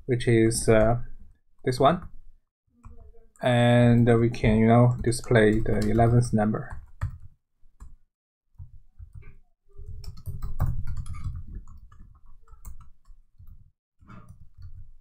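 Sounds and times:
keyboard typing clicks: 9.9 - 13.6.

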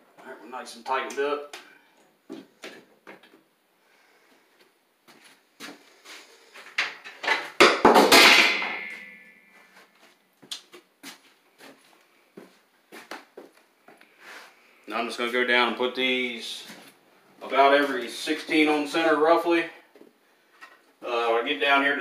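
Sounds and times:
loud metallic clatter: 7.9 - 9.4.

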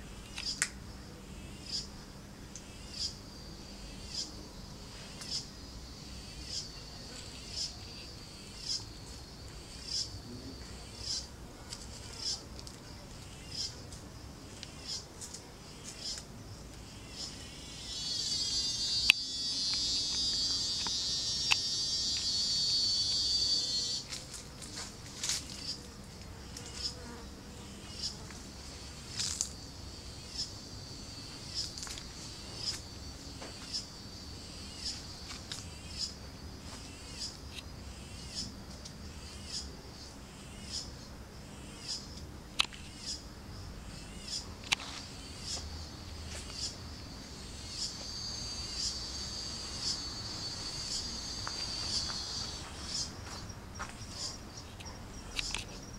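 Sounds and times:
faint steady hum: 0.0 - 55.9
insect high-pitched buzz: 0.0 - 55.9
insect short high chirps: 0.1 - 0.7, 1.4 - 2.0, 2.6 - 11.3, 16.8 - 24.2, 28.8 - 55.9.

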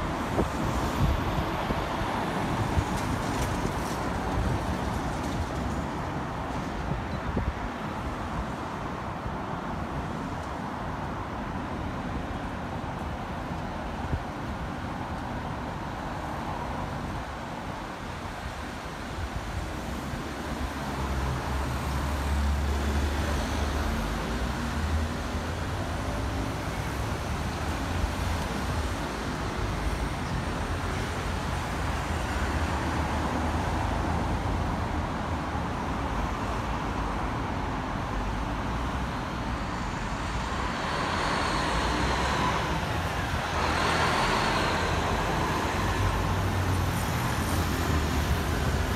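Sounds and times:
road traffic passing: 0.0 - 48.9.

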